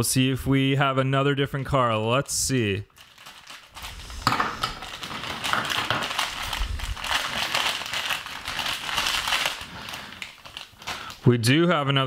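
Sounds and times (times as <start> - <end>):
plastic wrapper crackling: 2.9 - 11.3.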